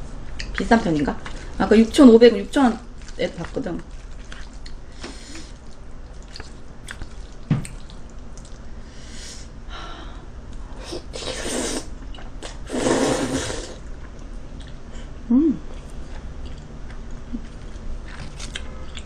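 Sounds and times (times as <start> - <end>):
noodles being slurped: 12.6 - 13.8.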